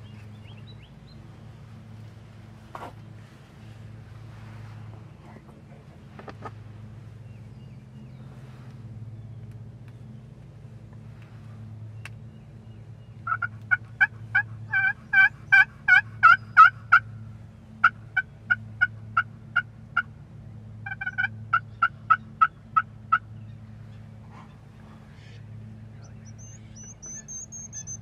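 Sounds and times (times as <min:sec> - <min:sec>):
turkey yelping: 0:13.2 - 0:17.1, 0:20.8 - 0:23.3, 0:26.2 - 0:28.0.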